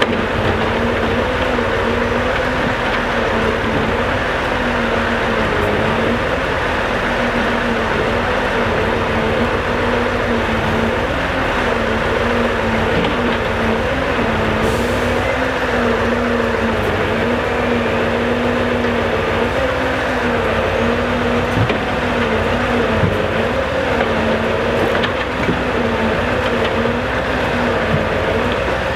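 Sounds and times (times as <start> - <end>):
truck engine and hydraulic drone: 0.0 - 28.9.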